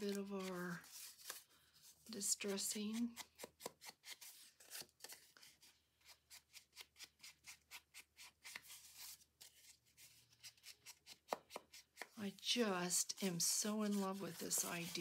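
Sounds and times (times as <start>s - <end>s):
foam tool rubbing on paper: 13.2s - 15.0s.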